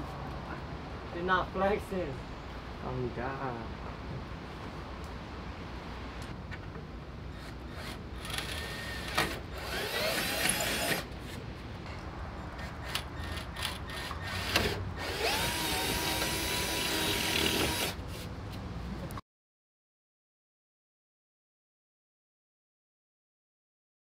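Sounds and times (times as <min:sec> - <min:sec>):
power drill whining: 0:07.7 - 0:11.1, 0:12.9 - 0:18.0.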